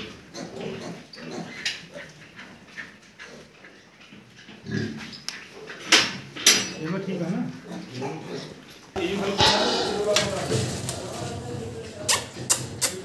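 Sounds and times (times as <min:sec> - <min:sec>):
pigs grunting: 0:04.6 - 0:05.1, 0:07.6 - 0:13.0.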